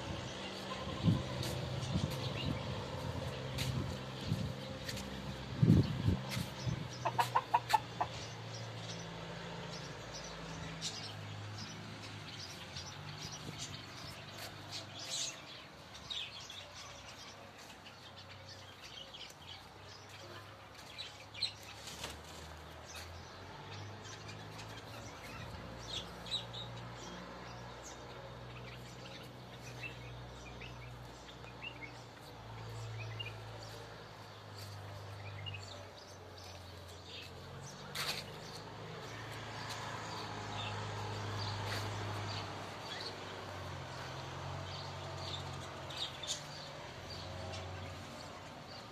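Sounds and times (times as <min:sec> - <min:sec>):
small birds chirping: 0:00.0 - 0:48.9
chicken clucking: 0:06.9 - 0:08.3.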